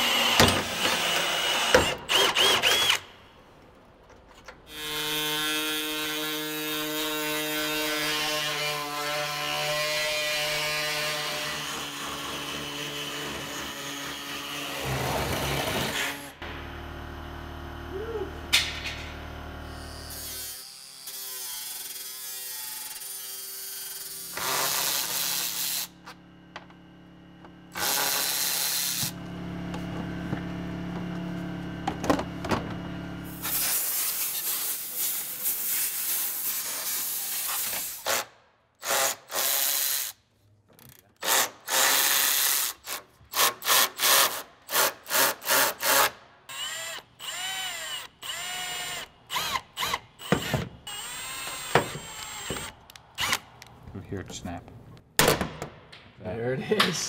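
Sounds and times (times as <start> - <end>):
cordless drill motor whine: 1.4 - 3.0, 46.5 - 53.4
angle grinder on sheet metal: 4.7 - 16.4, 19.6 - 25.9, 27.7 - 29.2, 33.2 - 40.2.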